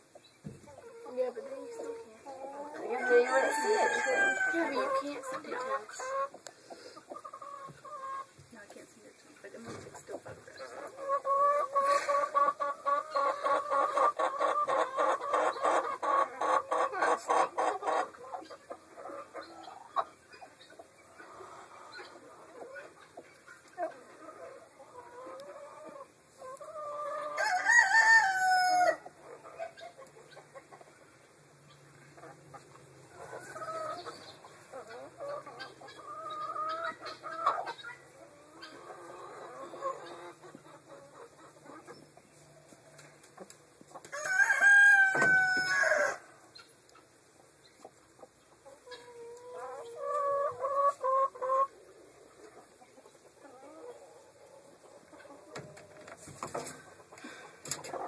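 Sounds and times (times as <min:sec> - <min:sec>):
chickens clucking: 0:00.0 - 0:58.0
loud drawn-out chicken calls: 0:00.1 - 0:08.3, 0:10.8 - 0:31.0, 0:43.9 - 0:46.8.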